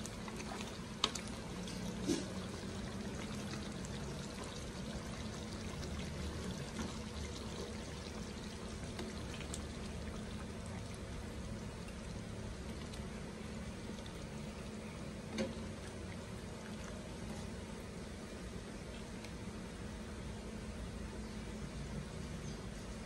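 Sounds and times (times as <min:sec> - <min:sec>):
ladle stirring sauce: 0:00.0 - 0:14.7
sauce bubbling in pan: 0:00.0 - 0:18.1.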